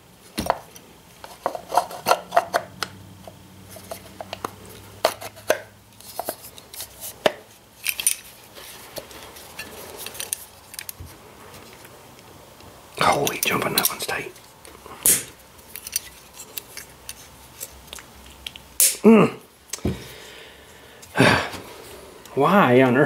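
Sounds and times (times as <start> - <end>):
small metal parts clicking: 7.8 - 8.4, 15.6 - 18.6.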